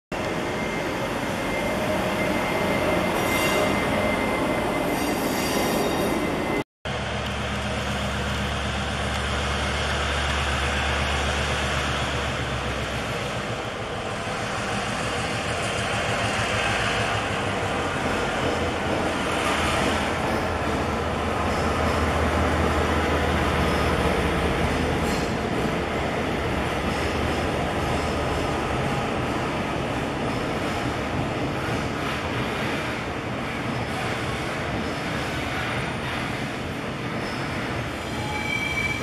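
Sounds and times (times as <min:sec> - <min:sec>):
diesel locomotive engine droning: 0:00.1 - 0:39.0
locomotive passing on rails: 0:00.1 - 0:39.0
wheels rumbling on rail: 0:00.1 - 0:39.0
high wheel squeal: 0:00.2 - 0:06.6, 0:37.2 - 0:39.0.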